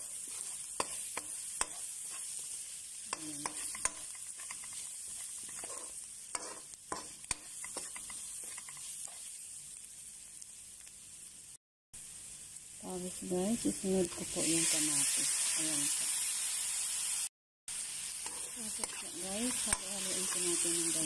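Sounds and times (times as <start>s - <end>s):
spoon clicking and scraping pan: 0.0s - 9.3s, 18.2s - 20.7s
food frying in hot oil: 0.0s - 21.0s.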